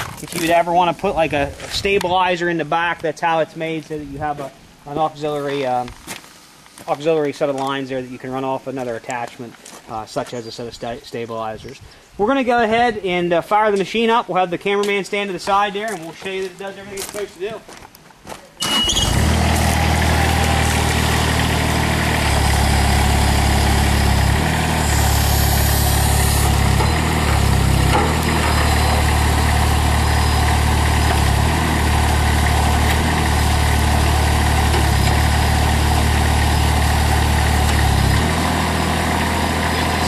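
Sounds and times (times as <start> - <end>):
loader engine starting and running: 18.6 - 40.0.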